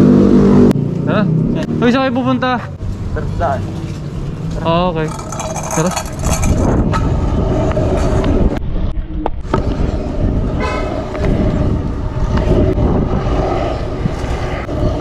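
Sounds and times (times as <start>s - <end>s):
scooter wheels rolling on concrete: 2.8s - 8.5s, 9.5s - 15.0s
wind buffeting microphone: 4.1s - 15.0s.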